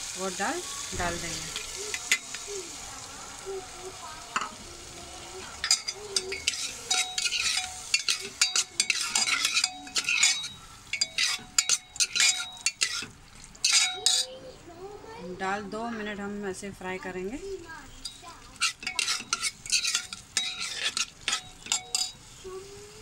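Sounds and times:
dal sizzling in oil: 0.0s - 23.0s
metal ladle scraping and clinking: 5.6s - 14.4s, 18.0s - 22.2s.

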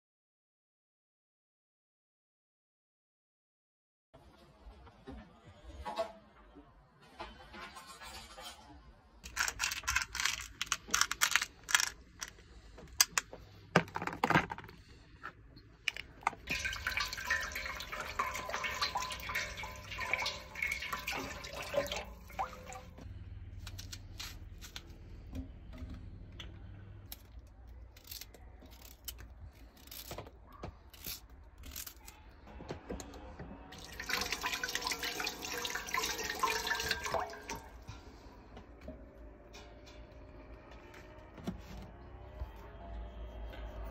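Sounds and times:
crinkling and knocking handling: 9.2s - 16.5s
vegetables rinsed by hand: 16.3s - 26.0s, 33.8s - 38.4s.

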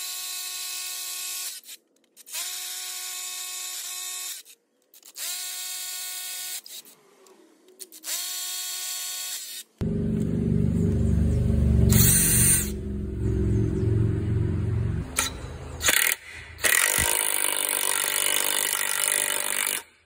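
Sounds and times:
rotary hammer drilling into concrete: 15.8s - 20.0s.

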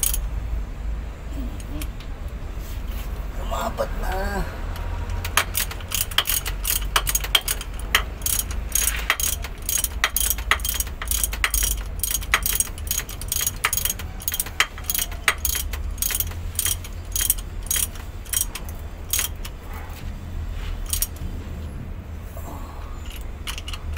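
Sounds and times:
ratchet wrench clicking: 0.0s - 0.3s, 4.7s - 19.7s, 20.8s - 21.2s, 23.0s - 23.9s
steady low hum: 0.0s - 23.9s.

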